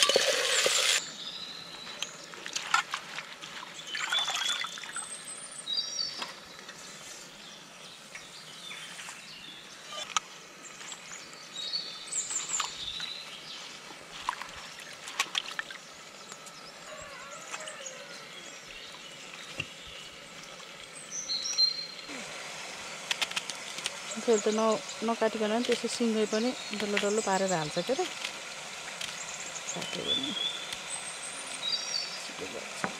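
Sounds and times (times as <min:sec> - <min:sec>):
birds chirping: 0:15.7 - 0:32.9.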